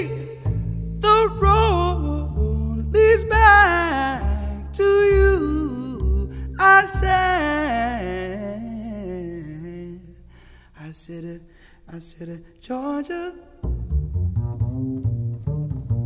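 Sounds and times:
low held bass note: 0.0s - 9.6s
plucked double bass: 0.0s - 10.4s, 13.5s - 16.0s.

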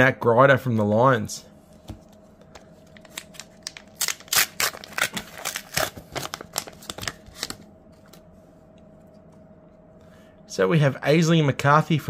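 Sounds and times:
card pack wrapper crinkling and tearing: 2.8s - 8.2s.

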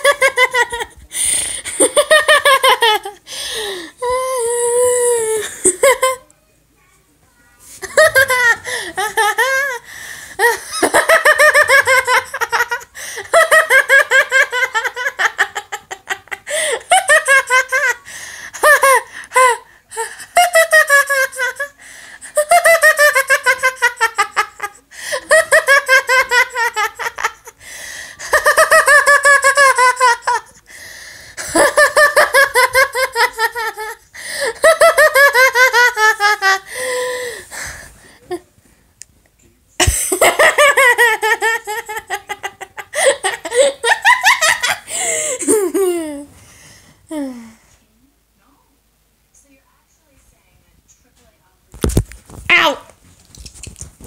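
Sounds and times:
boy laughing: 7.8s - 9.8s, 10.4s - 18.0s, 31.4s - 37.0s, 39.8s - 46.3s.

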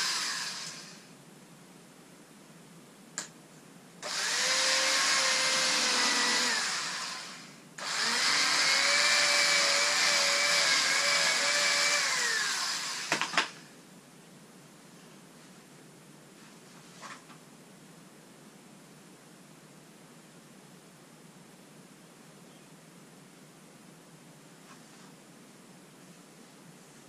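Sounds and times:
small electric motor whining: 0.0s - 1.1s, 4.0s - 13.6s.

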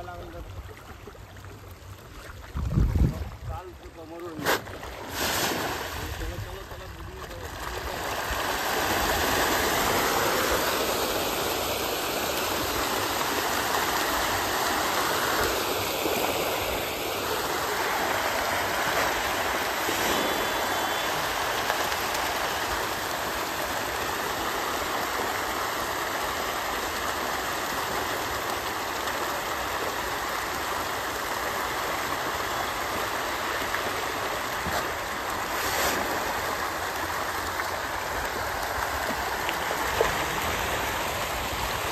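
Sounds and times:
fish splashing water: 4.4s - 6.2s, 7.2s - 31.4s.

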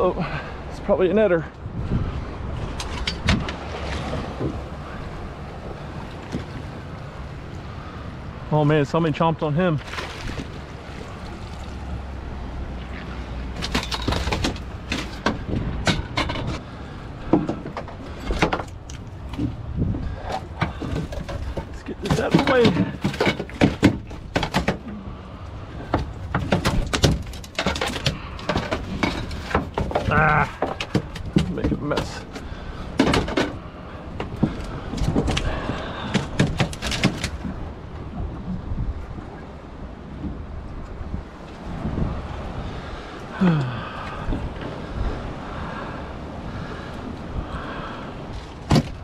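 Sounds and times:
wind buffeting microphone: 0.0s - 49.0s
knocks and clatters on boat deck: 1.9s - 6.8s, 13.0s - 49.0s.

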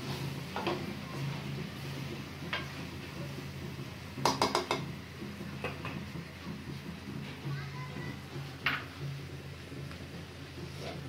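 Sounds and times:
metal spatula scraping a pan: 10.7s - 11.0s.

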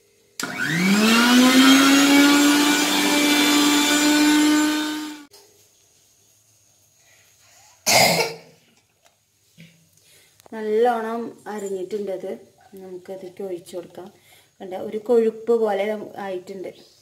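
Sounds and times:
mixer grinder whining: 0.4s - 5.3s.

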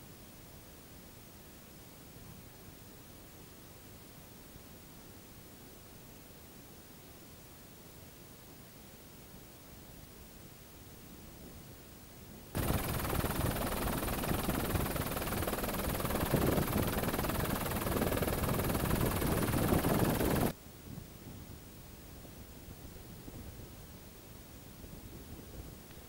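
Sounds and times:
helicopter running: 12.6s - 20.5s.

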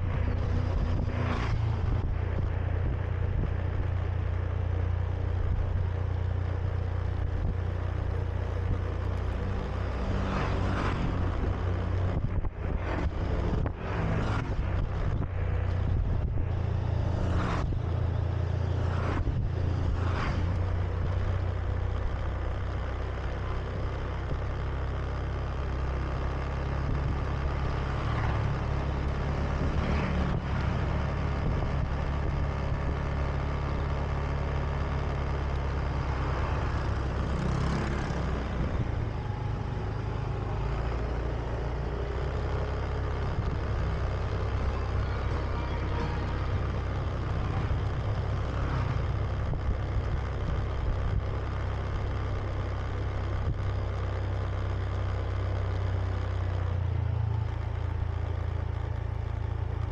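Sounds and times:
vehicle passing: 0.0s - 2.8s, 9.4s - 20.8s, 27.8s - 32.0s, 35.8s - 50.3s
scooter engine running: 0.0s - 59.9s
wind and road noise: 0.0s - 59.9s.

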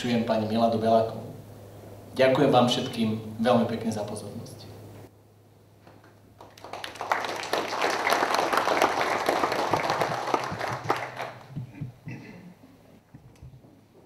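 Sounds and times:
audience applauding: 6.4s - 11.8s.

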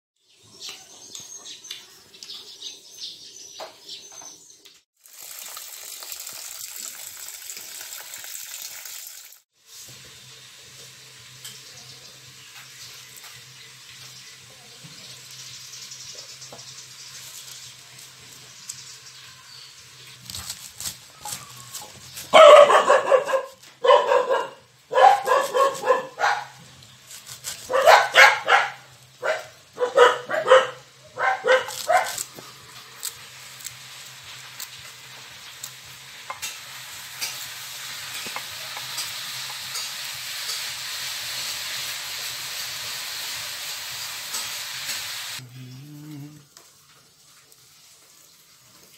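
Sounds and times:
dog barking: 22.3s - 26.6s, 27.6s - 32.2s.

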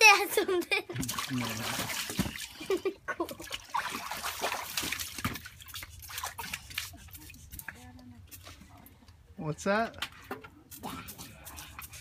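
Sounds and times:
water splashing in paddling pool: 0.9s - 7.9s.

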